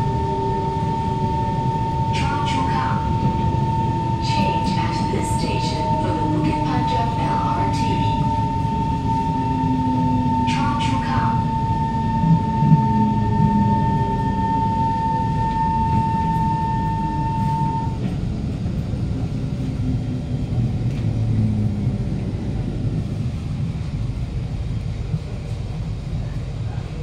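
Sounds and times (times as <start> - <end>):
traction inverter whining: 0.0 - 24.0
train car rumbling to a stop: 0.0 - 27.0.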